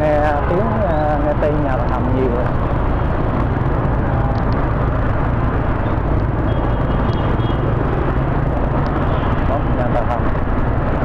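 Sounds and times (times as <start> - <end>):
motorbike engine and road noise: 0.0 - 11.0.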